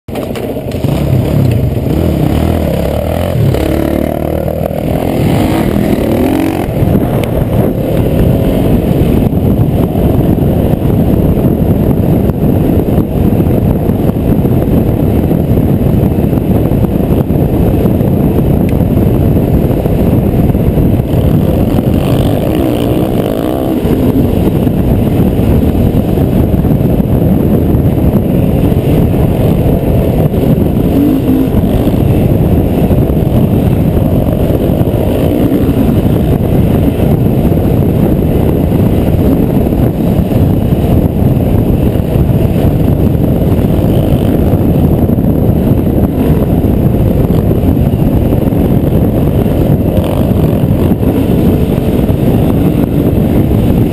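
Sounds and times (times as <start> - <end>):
dirt bike engine revving: 0.1 - 11.2, 19.6 - 26.6, 28.4 - 41.0, 41.8 - 46.6, 48.3 - 53.9.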